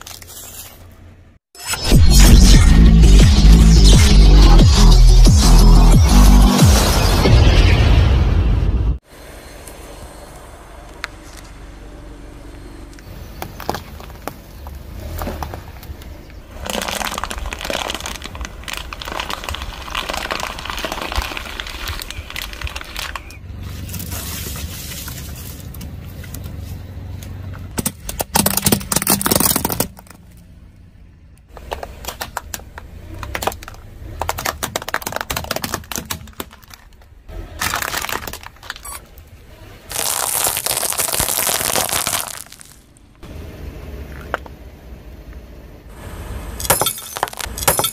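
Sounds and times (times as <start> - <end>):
plastic baskets cracking: 16.5 - 23.4, 31.6 - 38.8, 39.9 - 42.9
tyre crushing objects: 16.5 - 25.7, 33.2 - 38.9, 39.9 - 42.9, 46.6 - 47.9.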